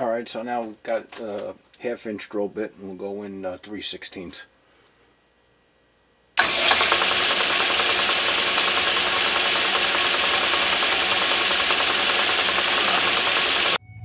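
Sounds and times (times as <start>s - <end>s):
drill boring into brass: 6.4s - 13.8s.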